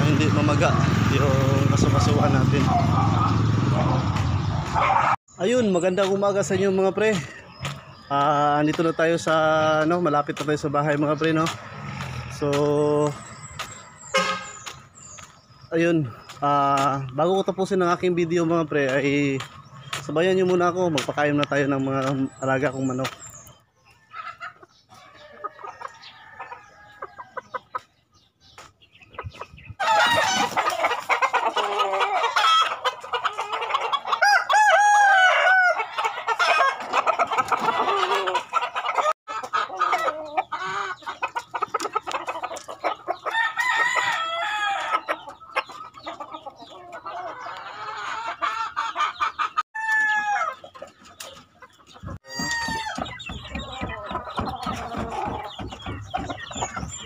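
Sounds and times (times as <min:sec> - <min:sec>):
roosters crowing: 0:00.0 - 0:05.2, 0:10.7 - 0:15.1, 0:19.7 - 0:28.2, 0:29.8 - 0:57.0
chickens clucking: 0:00.0 - 0:57.0.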